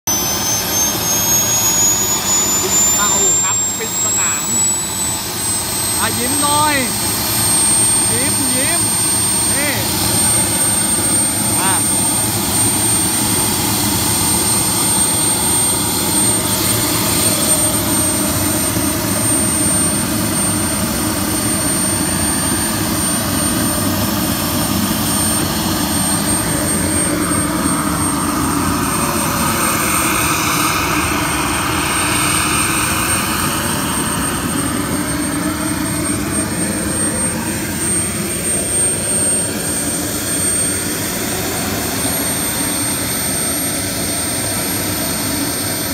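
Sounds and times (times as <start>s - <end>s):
turbine engine whining: 0.0s - 45.9s.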